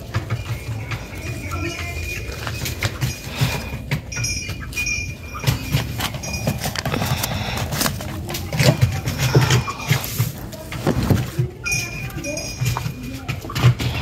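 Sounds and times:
footsteps: 0.0 - 14.0
phone handling rustling: 5.4 - 11.4.

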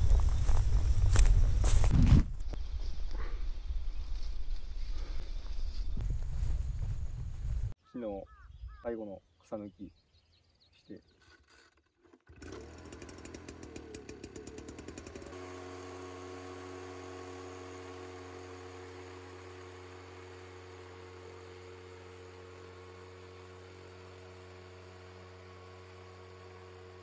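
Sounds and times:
harvesting machine engine running: 11.3 - 27.0.

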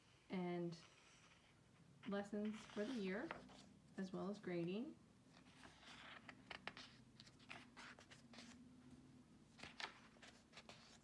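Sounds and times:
book pages turning: 5.3 - 8.6, 9.5 - 11.0.

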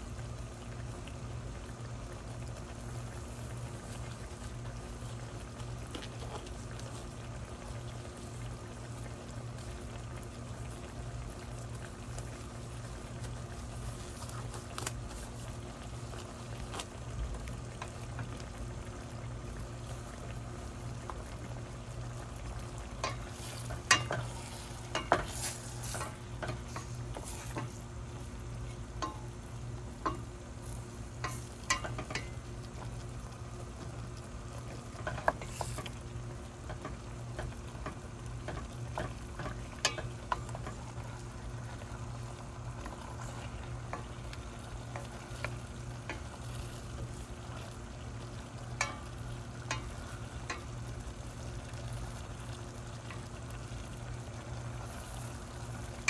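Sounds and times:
food sizzling in a frying pan: 0.0 - 56.0
steady low hum: 0.0 - 56.0
utensil scraping a pan: 23.0 - 27.8.

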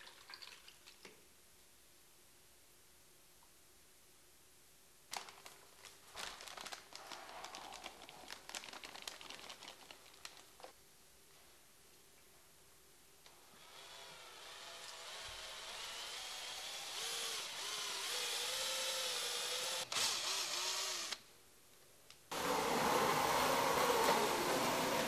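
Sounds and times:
electric drill mixing adhesive: 13.5 - 21.2, 22.3 - 25.0.

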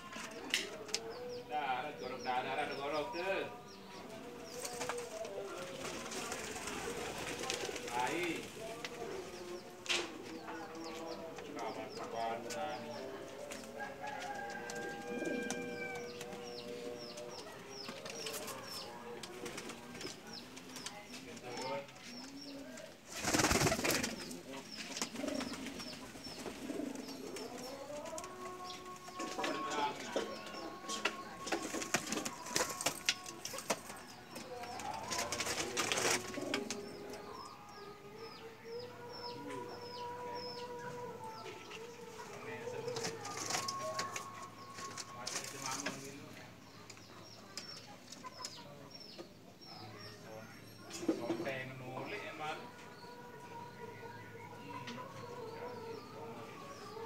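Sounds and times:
pigeons cooing: 2.0 - 48.6.

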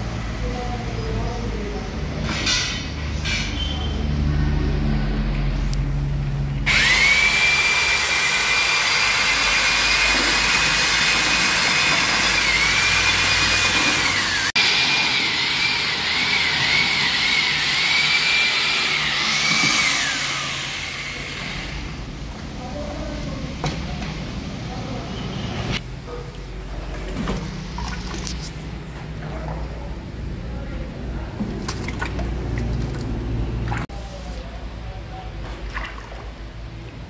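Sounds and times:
electric power tool whining: 6.6 - 21.9.

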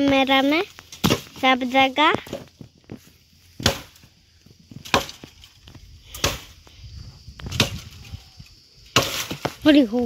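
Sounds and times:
blade chopping bamboo: 0.8 - 1.4, 3.6 - 4.0, 4.8 - 5.4, 6.1 - 6.5, 7.5 - 8.0, 8.9 - 9.6.

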